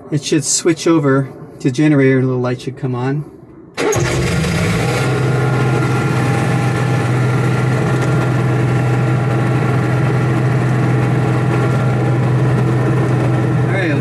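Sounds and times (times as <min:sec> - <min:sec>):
generator humming: 0:03.8 - 0:14.0.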